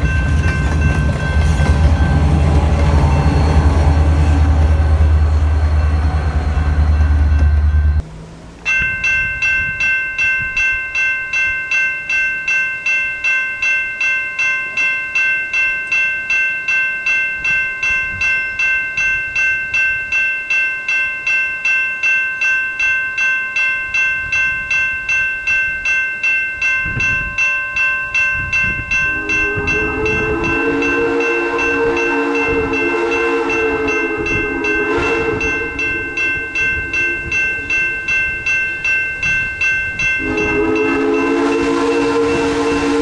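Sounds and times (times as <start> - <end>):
steam locomotive chime whistle: 0.0 - 8.0, 26.8 - 43.0
crossing bell ringing: 0.0 - 43.0.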